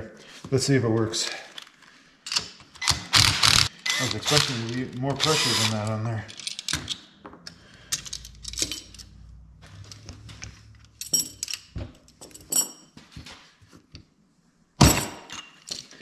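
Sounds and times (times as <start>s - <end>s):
metal parts clinking: 3.5s - 7.1s, 7.8s - 10.0s, 10.7s - 12.9s.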